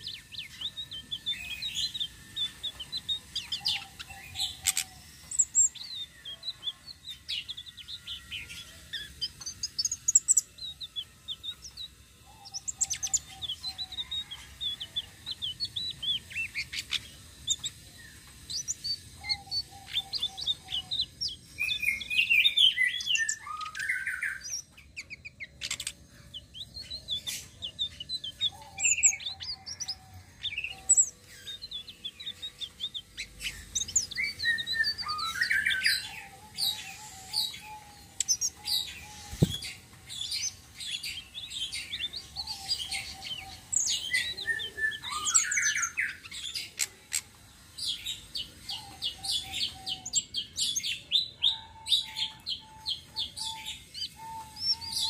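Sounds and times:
bird chirping and trilling: 0:00.0 - 0:55.0.

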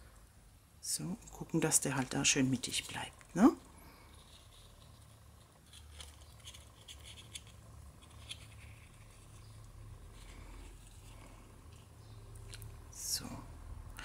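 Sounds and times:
low steady hum: 0:00.0 - 0:14.0
handling cardstock: 0:04.2 - 0:12.7.

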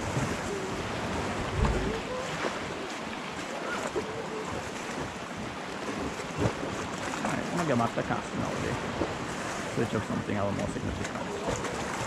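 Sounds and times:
small waves lapping on rocks: 0:00.0 - 0:12.0
wind: 0:00.0 - 0:12.0.

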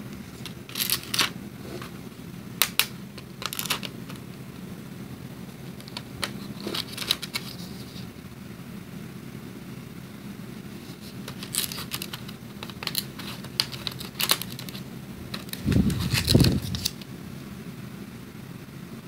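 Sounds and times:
steady low hum: 0:00.0 - 0:19.0
plastic trays clicking: 0:02.6 - 0:04.2, 0:11.3 - 0:17.0.

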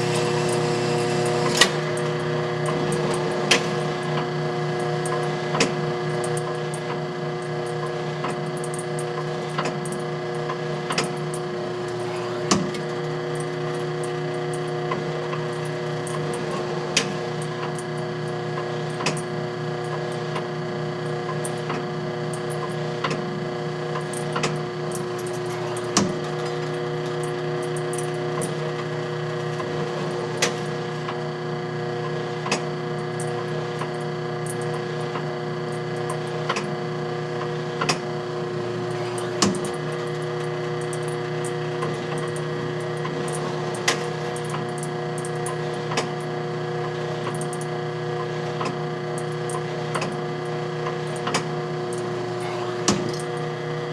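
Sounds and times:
electric motor humming: 0:00.0 - 0:04.9, 0:51.6 - 0:53.9
mechanical clicks and clacks: 0:23.9 - 0:28.8, 0:38.8 - 0:46.3, 0:48.5 - 0:50.2, 0:50.8 - 0:53.5.

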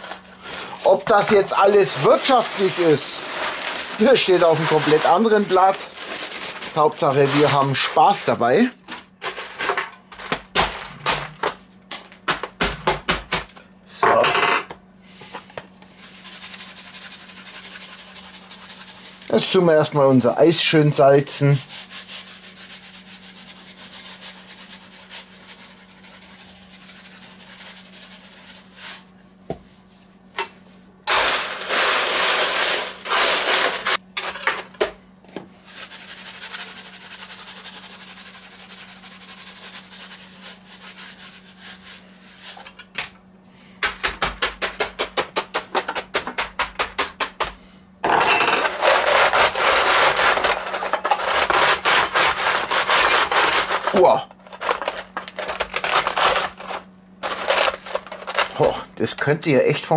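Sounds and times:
ice rattling: 0:00.0 - 0:08.4, 0:52.6 - 0:59.2
ice pouring and crunching: 0:00.0 - 0:08.6, 0:31.1 - 0:34.0, 0:48.6 - 0:59.3
ice scraping against metal: 0:00.0 - 0:09.9, 0:31.1 - 0:34.0, 0:48.3 - 0:59.3.

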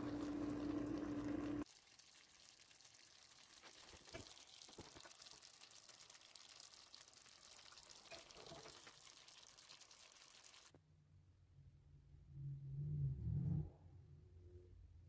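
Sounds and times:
food sizzling in a pan: 0:00.0 - 0:10.7
sauce popping: 0:00.0 - 0:10.7.

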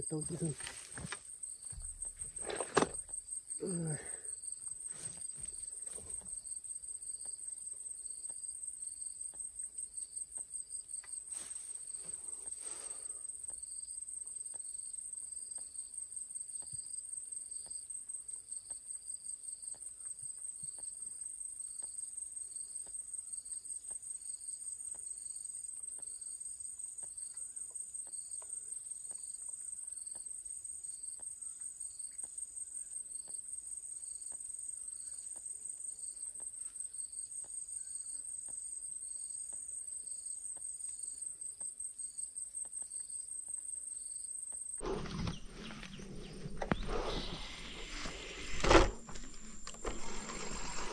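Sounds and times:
higher insect chirp: 0:00.0 - 0:17.9, 0:21.6 - 0:50.9
insect chirping: 0:00.0 - 0:50.9
short rustles: 0:44.8 - 0:50.9.

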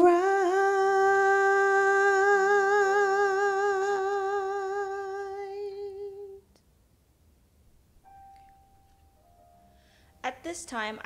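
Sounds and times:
woman singing a long note: 0:00.0 - 0:06.4.

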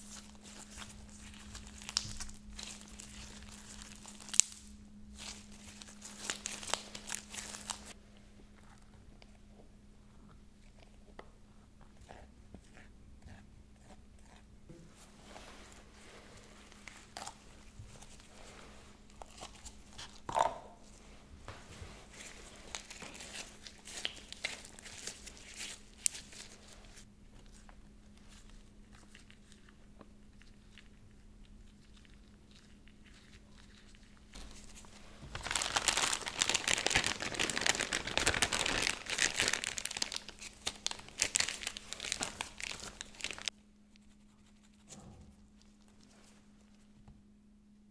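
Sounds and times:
plastic piping bag crinkling: 0:00.0 - 0:08.0, 0:15.9 - 0:21.0, 0:21.8 - 0:43.5.

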